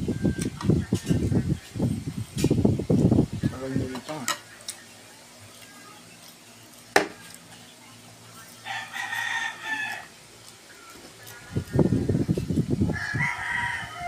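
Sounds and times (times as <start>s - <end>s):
rooster crowing: 8.6s - 10.2s, 12.9s - 14.0s.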